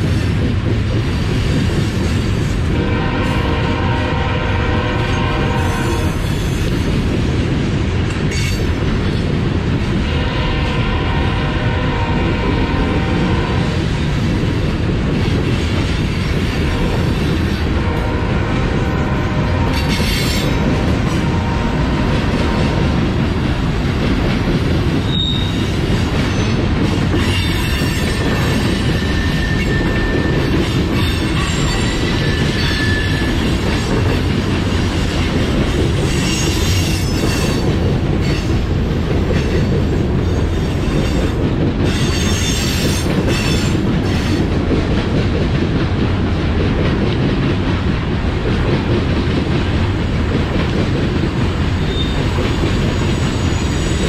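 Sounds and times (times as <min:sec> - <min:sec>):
train wheels rumbling on rails: 0:00.0 - 0:54.0
high wheel squeals: 0:25.0 - 0:25.7.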